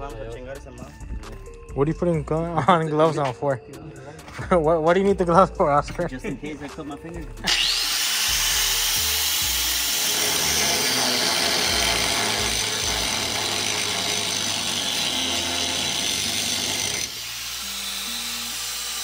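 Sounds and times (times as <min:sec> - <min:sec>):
background music: 0:00.0 - 0:19.0
power cutting tool blade running: 0:07.5 - 0:19.0.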